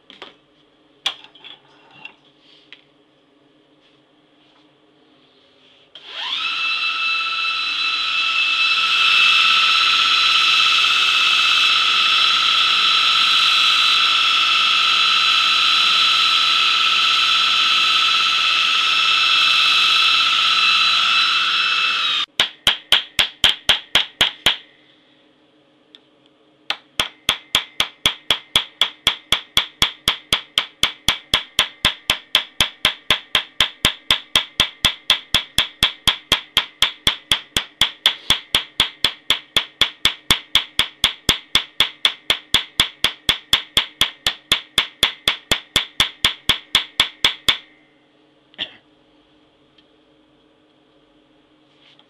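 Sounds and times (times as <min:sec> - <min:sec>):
small hammer striking metal: 0:22.3 - 0:24.6, 0:26.7 - 0:47.7.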